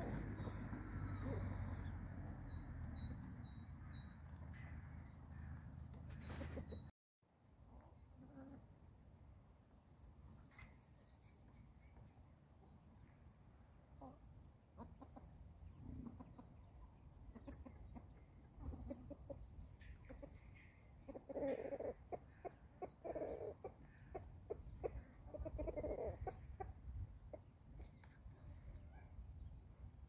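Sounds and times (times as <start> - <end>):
hens clucking: 5.9 - 6.9, 13.6 - 28.3.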